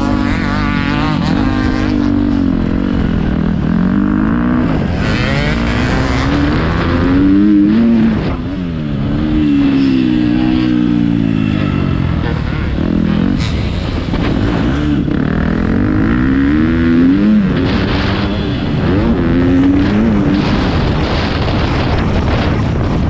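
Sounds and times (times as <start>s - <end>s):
motocross engine revving: 0.0s - 22.9s.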